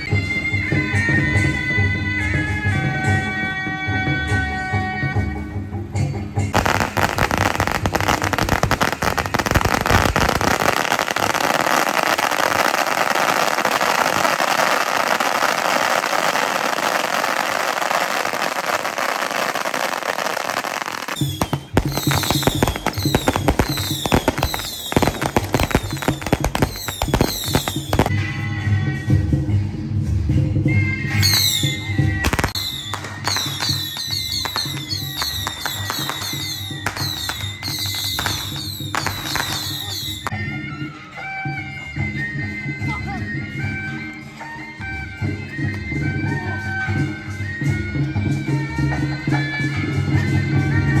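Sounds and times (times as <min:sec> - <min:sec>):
music: 0:00.0 - 0:51.0
firecrackers crackling: 0:06.5 - 0:28.2, 0:31.4 - 0:40.3
high chirping whistles: 0:21.0 - 0:28.0, 0:32.5 - 0:40.3.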